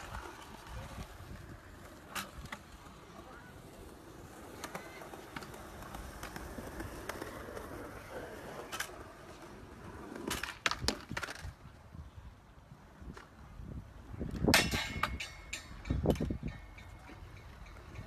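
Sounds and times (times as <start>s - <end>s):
scooter wheels rolling on concrete: 0.0s - 18.0s
scooter clacking on ground: 14.4s - 18.0s.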